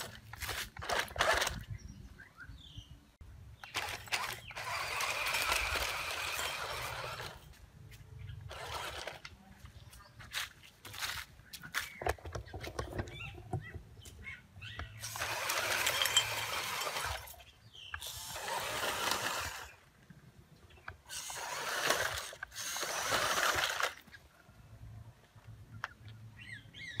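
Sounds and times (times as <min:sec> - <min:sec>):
toy truck motor whirring: 0:00.0 - 0:01.7, 0:03.6 - 0:07.5, 0:08.5 - 0:09.3, 0:15.0 - 0:19.9, 0:20.9 - 0:24.2.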